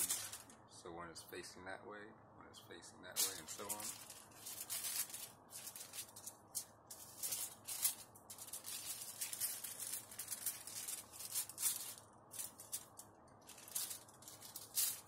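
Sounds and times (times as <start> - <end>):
foil pouches rustling: 0.0 - 0.5, 3.2 - 6.3, 6.9 - 15.0.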